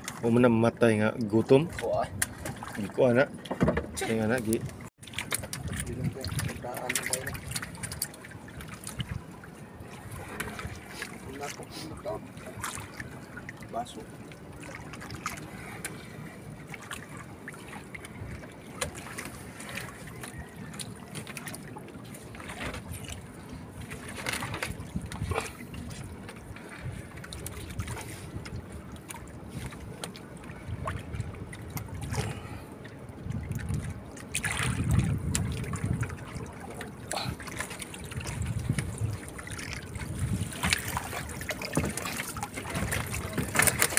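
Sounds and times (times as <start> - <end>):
water lapping against boat hull: 0.0 - 43.9
wind on microphone: 4.5 - 6.6, 24.4 - 26.1, 33.2 - 36.6, 38.0 - 42.0.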